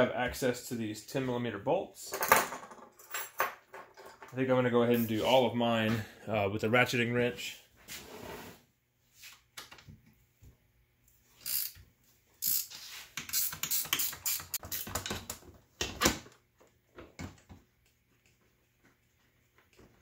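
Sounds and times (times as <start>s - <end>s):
ratcheting wrench clicking: 11.4s - 11.8s, 12.4s - 15.0s.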